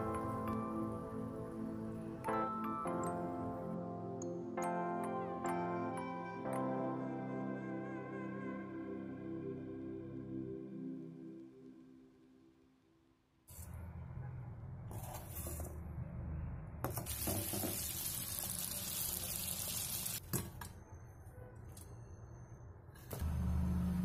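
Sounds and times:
food deep-frying in hot oil: 17.0s - 20.2s.

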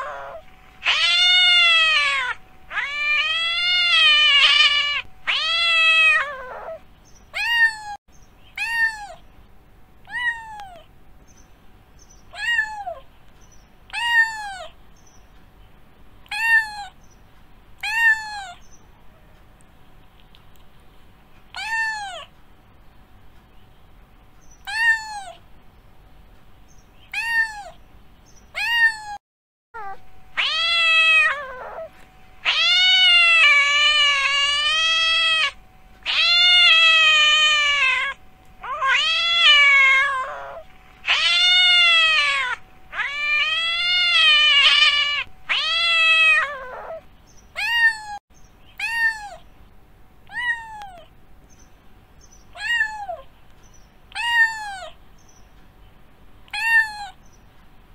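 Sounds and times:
cat meowing: 0.0s - 9.2s, 10.0s - 10.9s, 12.3s - 13.1s, 13.9s - 14.7s, 16.3s - 17.0s, 17.8s - 18.6s, 21.5s - 22.3s, 24.6s - 25.4s, 27.1s - 27.8s, 28.6s - 29.2s, 29.8s - 48.2s, 48.8s - 49.5s, 50.2s - 51.1s, 52.5s - 53.3s, 54.1s - 55.0s, 56.5s - 57.2s.

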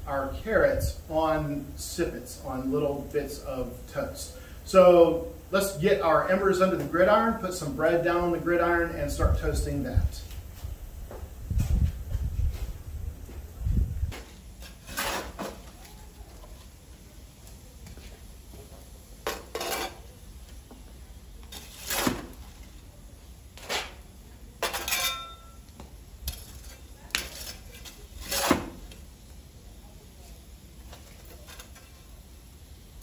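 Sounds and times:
iron tool scraping hearth floor: 14.1s - 16.8s, 17.8s - 20.8s, 21.4s - 25.5s, 26.3s - 29.0s, 30.8s - 32.2s
metallic ring: 24.8s - 25.6s.

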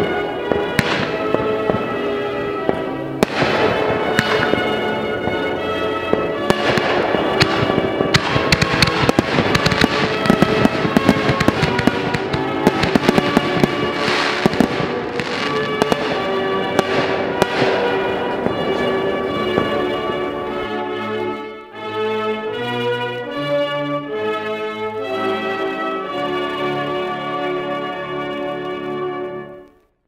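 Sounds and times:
fireworks bursting and crackling: 0.0s - 21.9s
music with held tones: 0.0s - 29.9s.

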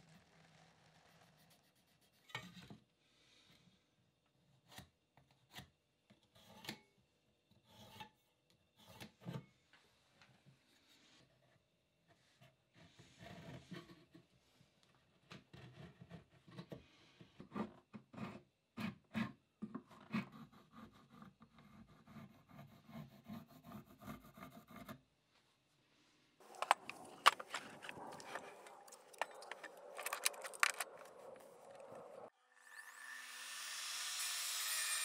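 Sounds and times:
pencil scratching: 0.9s - 2.4s, 20.0s - 25.0s
clamp clicks and rattles: 26.4s - 31.9s
wood knocks and scrapes: 26.4s - 32.3s.

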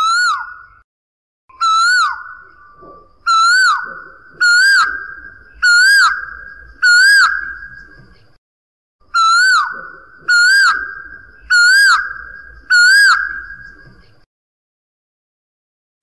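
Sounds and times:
koel calling: 1.5s - 8.0s, 9.1s - 14.2s.

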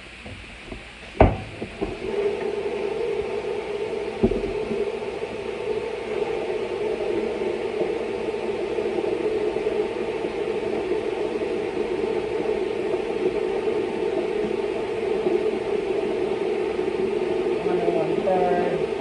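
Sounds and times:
steady mechanical whir: 0.0s - 19.0s.

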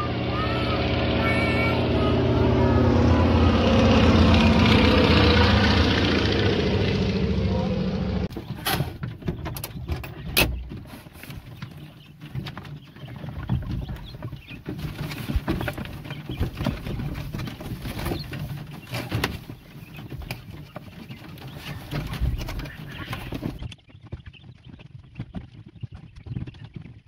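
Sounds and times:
quail calling: 0.0s - 3.8s, 12.8s - 23.6s.

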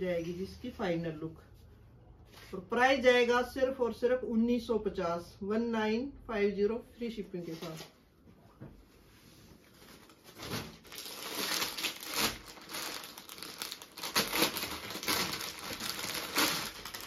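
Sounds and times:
plastic packet crinkling: 10.0s - 17.0s.

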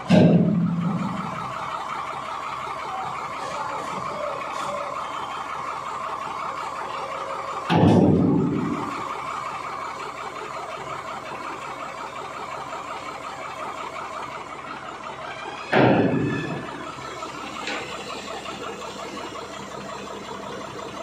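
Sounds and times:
loud booming thuds: 0.0s - 1.2s, 7.7s - 8.7s
machinery hum: 0.0s - 21.0s.

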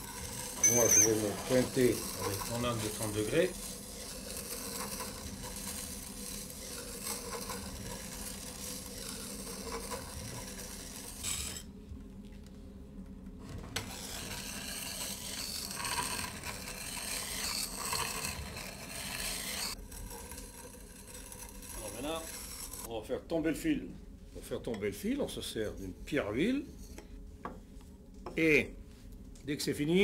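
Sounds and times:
steel grinding on sandstone wheel: 0.0s - 11.7s, 13.8s - 22.9s.

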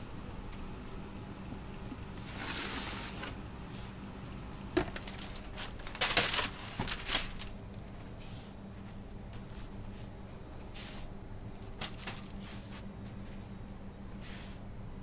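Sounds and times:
steady low hum: 0.0s - 15.0s
parchment paper rustling: 4.8s - 7.6s, 11.6s - 13.5s.

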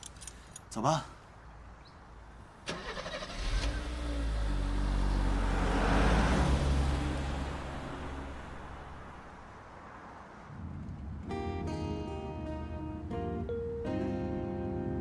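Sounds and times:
car driving past: 2.7s - 10.6s.

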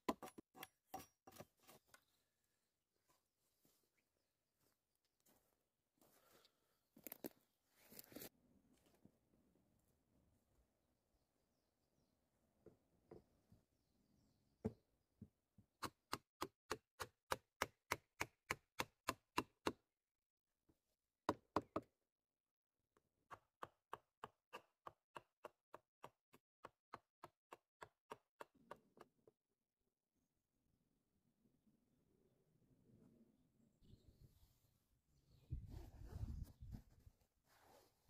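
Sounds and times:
hatchet chopping wood: 15.8s - 19.8s, 23.2s - 29.1s.

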